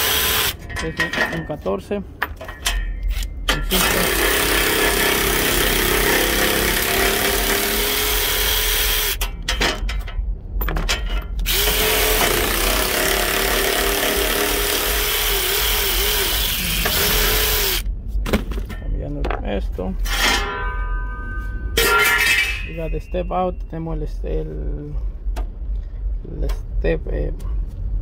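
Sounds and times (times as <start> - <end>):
cordless power ratchet whining: 0.0 - 0.6, 3.7 - 9.2, 11.4 - 17.8.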